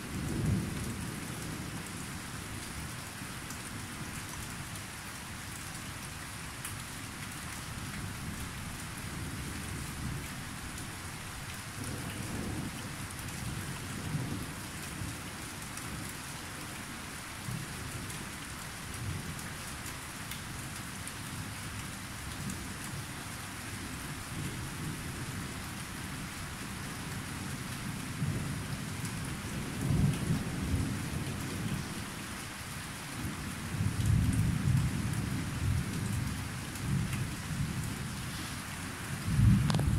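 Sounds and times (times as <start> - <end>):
steady rain falling: 0.0 - 39.9
low rolling thunder: 39.2 - 39.9.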